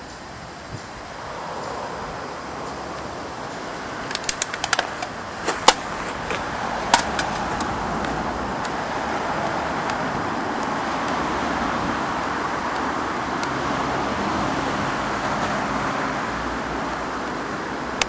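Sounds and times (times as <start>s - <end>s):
road traffic noise: 0.0s - 18.0s
sharp clicks and knocks: 4.1s - 8.8s.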